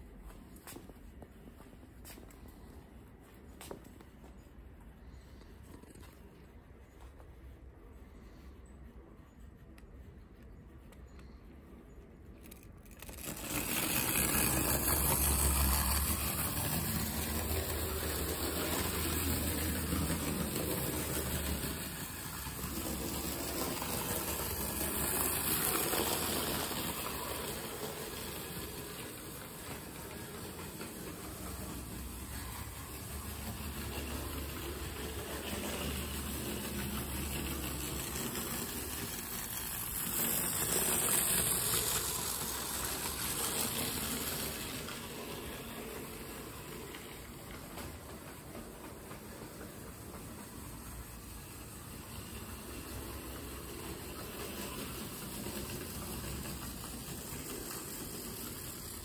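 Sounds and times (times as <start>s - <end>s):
clockwork toy train running: 12.4s - 59.0s.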